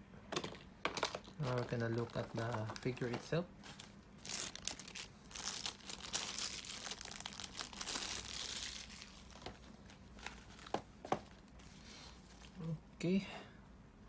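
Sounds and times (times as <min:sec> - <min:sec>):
plastic tray crinkling: 0:00.3 - 0:11.4.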